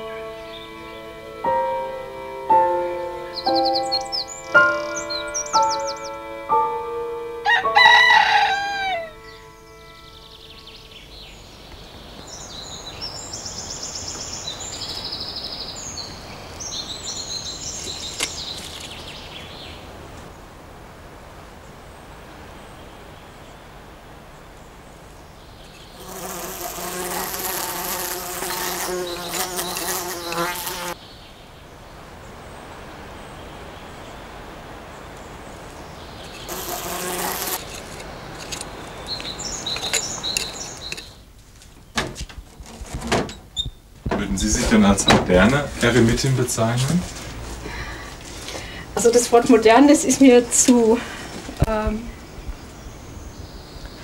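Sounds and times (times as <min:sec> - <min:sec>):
birds chirping: 0:00.0 - 0:20.7, 0:21.4 - 0:54.0
flying insect buzzing: 0:25.6 - 0:31.0, 0:36.0 - 0:41.1.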